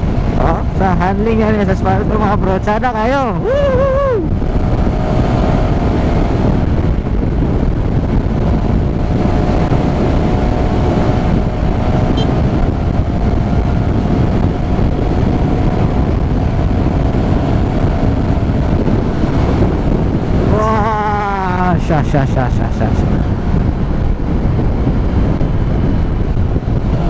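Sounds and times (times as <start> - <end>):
motorcycle engine cruising: 0.0 - 27.0
wind buffeting microphone: 0.0 - 27.0.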